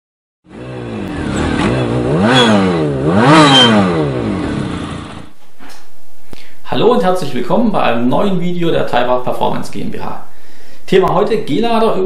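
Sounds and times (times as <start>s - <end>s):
engine revving: 0.5s - 5.3s.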